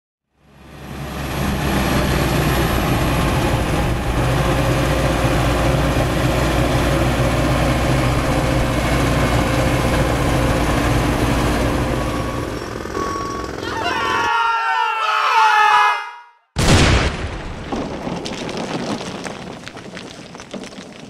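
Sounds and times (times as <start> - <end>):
diesel engine running under load: 0.4 - 14.2
track and machinery noise: 0.4 - 14.4.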